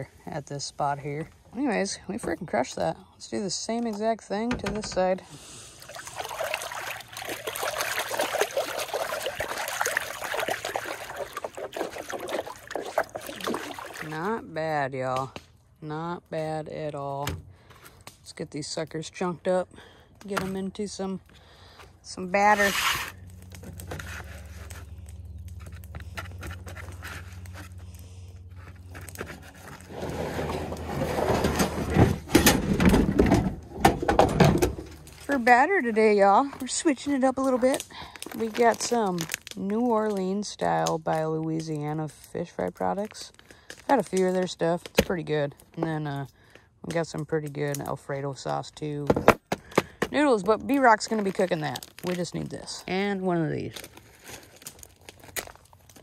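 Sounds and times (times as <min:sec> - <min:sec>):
water splashing and trickling: 0:04.9 - 0:15.2, 0:34.0 - 0:46.2, 0:50.2 - 0:56.0
steady low hum: 0:20.9 - 0:33.9
plastic tote scraping on metal: 0:22.4 - 0:25.0, 0:25.6 - 0:27.9, 0:28.5 - 0:35.4.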